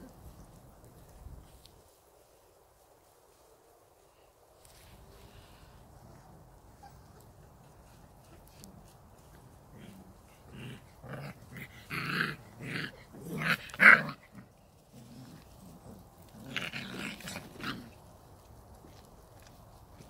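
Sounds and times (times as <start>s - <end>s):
puppies growling: 9.6s - 18.0s.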